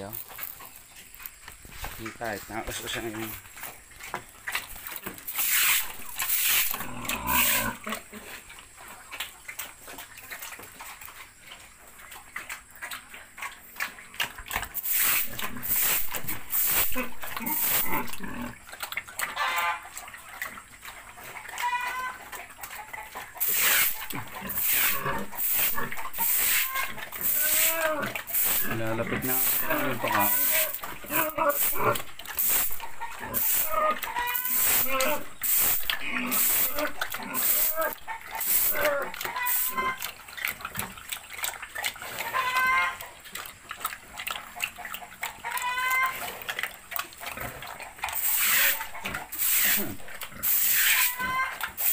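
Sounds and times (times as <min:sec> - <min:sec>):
pig slurping and chewing: 0:00.0 - 0:51.9
high-pitched animal calls: 0:05.3 - 0:08.3, 0:14.8 - 0:18.4, 0:19.3 - 0:19.9, 0:21.5 - 0:40.1, 0:42.1 - 0:43.1, 0:45.4 - 0:46.2, 0:48.2 - 0:51.9
short high animal calls: 0:26.2 - 0:28.5, 0:29.4 - 0:31.8, 0:36.3 - 0:40.0.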